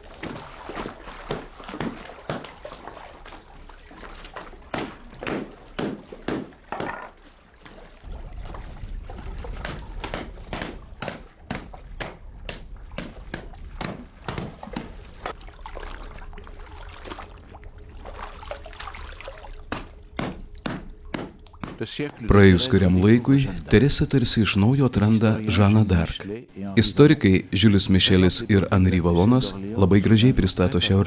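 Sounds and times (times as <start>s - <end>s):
wet cloth splashing in water: 0.0s - 22.0s.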